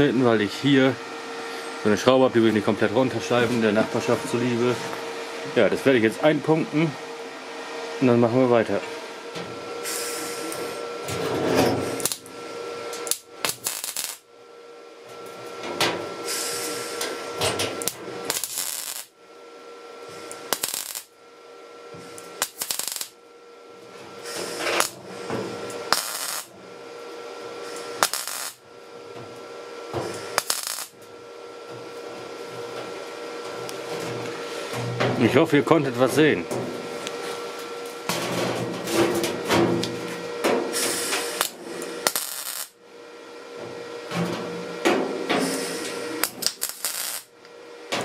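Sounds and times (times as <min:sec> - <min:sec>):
welding arc crackle: 0:11.9 - 0:12.3, 0:13.0 - 0:14.3, 0:17.7 - 0:19.2, 0:20.1 - 0:21.2, 0:22.1 - 0:23.2, 0:24.2 - 0:25.0, 0:25.6 - 0:26.5, 0:27.6 - 0:28.6, 0:30.1 - 0:31.1, 0:40.8 - 0:42.8, 0:45.4 - 0:47.4.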